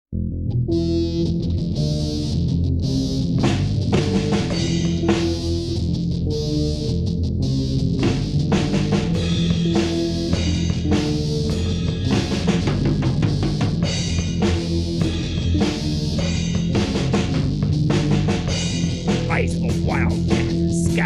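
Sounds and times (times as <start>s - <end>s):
bass and guitar notes: 0.1s - 21.0s
drum kit beat: 3.4s - 5.6s, 8.0s - 21.0s.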